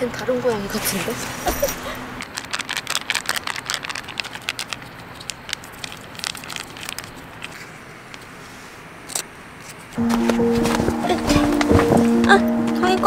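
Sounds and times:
foil pouch crinkling: 2.2 - 7.8.

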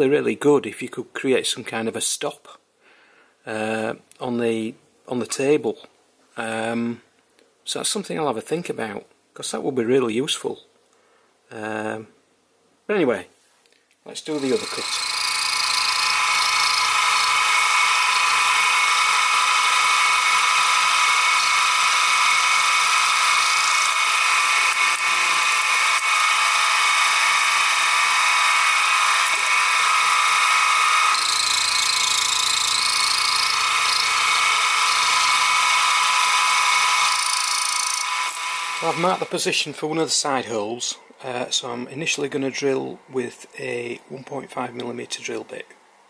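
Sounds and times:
milling machine whining: 14.3 - 39.4.

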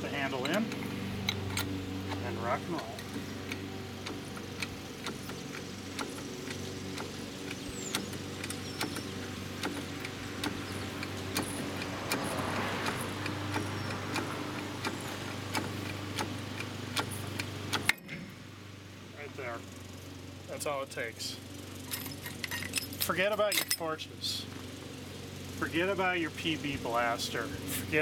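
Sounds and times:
steady low hum: 0.0 - 24.9
hydraulic puller clicking: 0.4 - 18.2.

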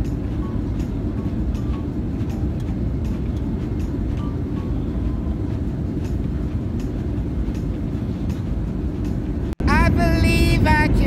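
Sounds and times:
jet airliner cabin rumble: 0.0 - 11.0.

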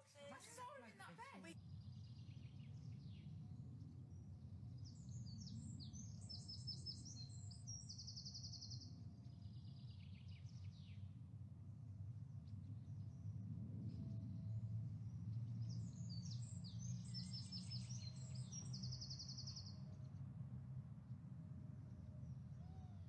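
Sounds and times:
birds chirping and trilling: 15.6 - 19.8.

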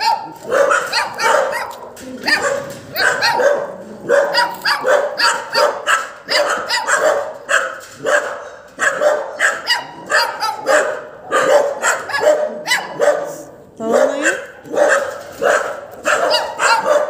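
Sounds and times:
dog barking: 0.0 - 17.0.

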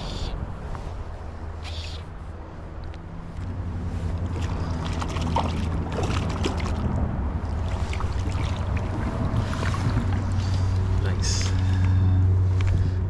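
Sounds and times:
bird calling: 1.6 - 2.1
fast river rushing: 4.0 - 12.4.

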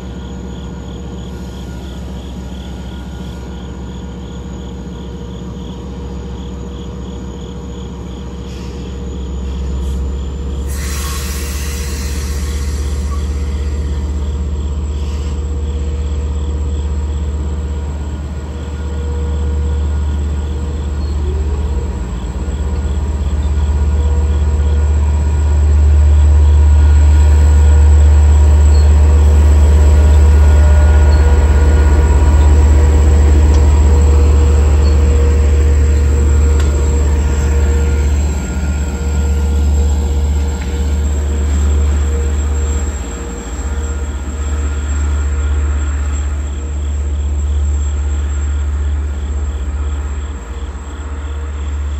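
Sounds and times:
diesel locomotive engine drone: 0.0 - 51.9
air hiss: 10.7 - 13.6.

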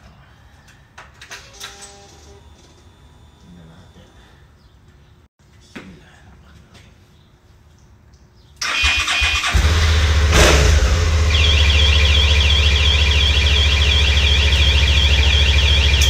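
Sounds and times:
motorcycle engine starting and idling: 8.6 - 16.0
electronic alarm sweeping tone: 11.1 - 16.0.

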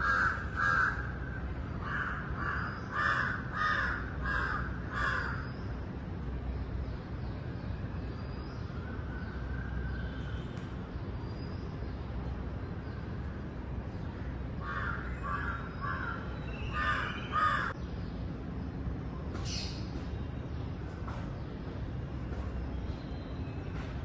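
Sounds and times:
crows cawing: 0.0 - 5.5, 14.6 - 17.8.

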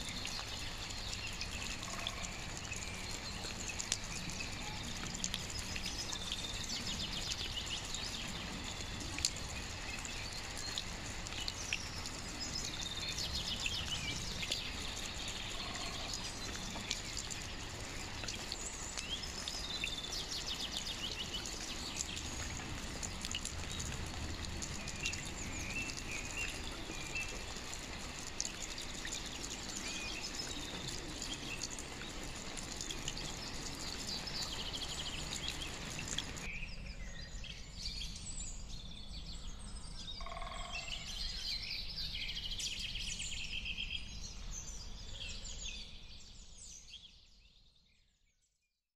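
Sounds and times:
steady rain falling: 0.0 - 36.5.

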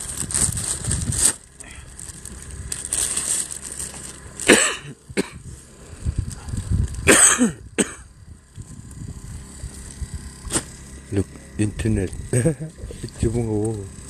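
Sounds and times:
person coughing: 4.5 - 5.4, 7.1 - 8.1.

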